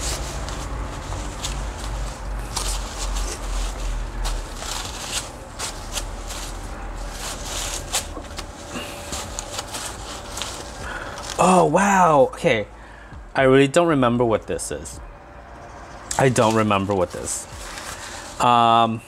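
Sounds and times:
paper wrapping crinkling: 0:00.0 - 0:11.8, 0:16.1 - 0:18.8
steady low hum: 0:00.0 - 0:19.0.

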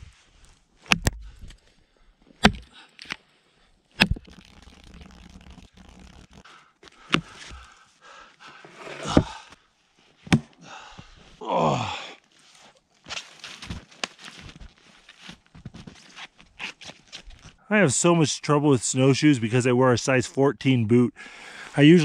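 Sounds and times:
axe chopping log: 0:02.4 - 0:02.7, 0:10.3 - 0:10.6
snow and wood scraping: 0:08.6 - 0:09.4, 0:21.8 - 0:22.0.

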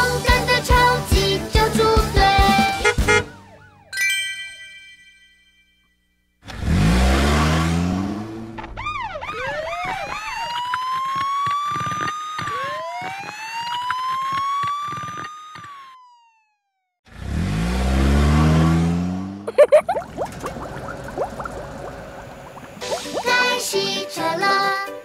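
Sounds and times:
car sound effect revving: 0:06.4 - 0:10.2, 0:17.1 - 0:23.0
cartoon police siren wailing: 0:08.6 - 0:17.0.

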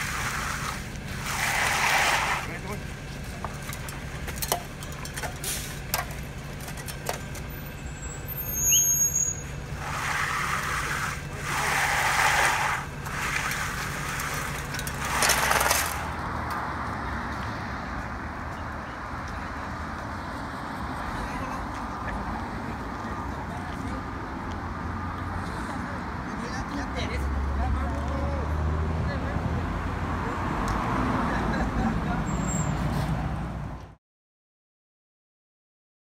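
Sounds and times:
wet concrete pouring down chute: 0:00.0 - 0:02.5, 0:09.8 - 0:16.0
shovels scraping in concrete: 0:00.0 - 0:02.8, 0:09.8 - 0:16.1
truck engine running: 0:00.0 - 0:08.4
outdoor background: 0:00.0 - 0:34.0.

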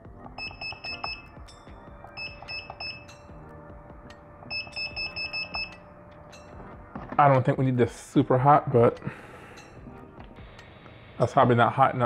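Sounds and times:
short high beeps: 0:00.4 - 0:01.3, 0:02.1 - 0:03.2, 0:04.5 - 0:05.8.

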